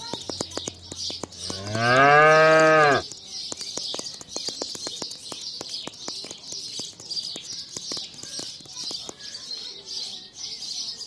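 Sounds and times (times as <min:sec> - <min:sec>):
light clicks: 0:00.0 - 0:09.2
faint bird chirping: 0:00.0 - 0:11.0
cow mooing: 0:01.6 - 0:03.0.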